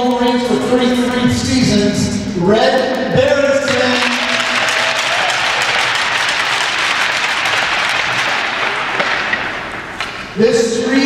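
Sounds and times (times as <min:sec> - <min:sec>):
crowd applauding: 0:03.7 - 0:09.9.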